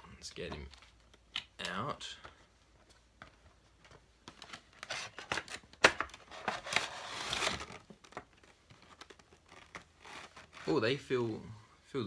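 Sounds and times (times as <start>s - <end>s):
packaging rustling and crinkling: 3.6s - 11.0s.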